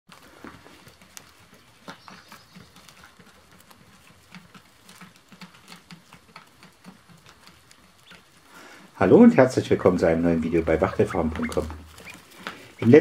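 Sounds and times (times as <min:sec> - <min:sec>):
beaks tapping and clicking: 0:01.0 - 0:08.9, 0:10.5 - 0:13.0.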